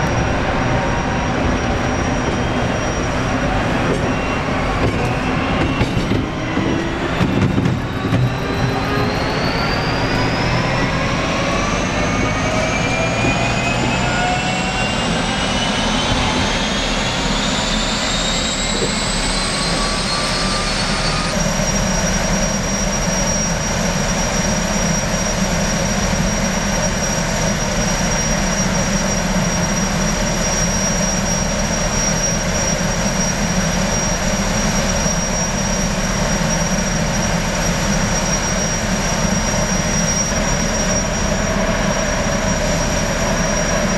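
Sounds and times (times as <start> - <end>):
low rumble: 0.0 - 21.0
gas turbines whining: 0.0 - 43.9.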